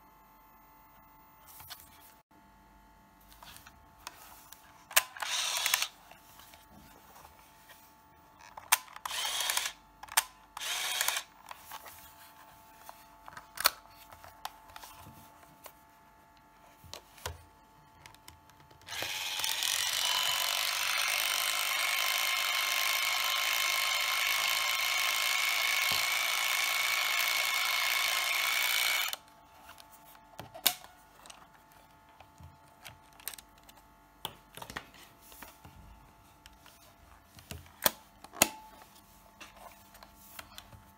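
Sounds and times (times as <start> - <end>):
camera motor whirring: 4.9 - 6.0, 8.4 - 12.0, 18.9 - 29.2.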